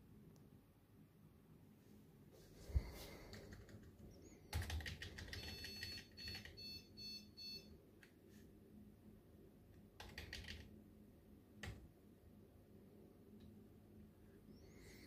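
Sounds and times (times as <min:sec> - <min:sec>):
computer beeping: 0:04.1 - 0:07.7.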